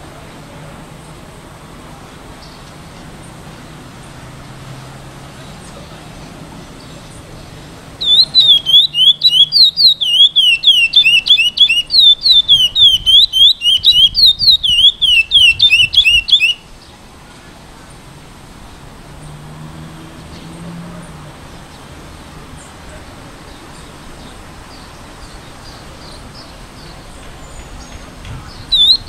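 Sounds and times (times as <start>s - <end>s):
bird whistling song: 8.0s - 16.7s, 24.7s - 29.0s.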